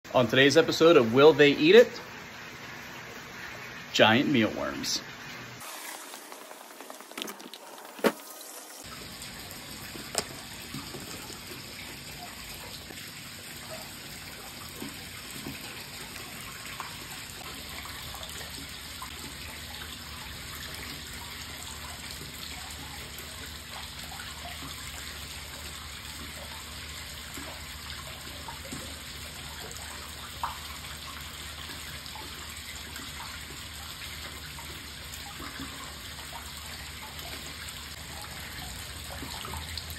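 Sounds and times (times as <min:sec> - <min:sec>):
running water in pond: 0:00.0 - 0:39.9
fish splashing at surface: 0:05.6 - 0:17.5.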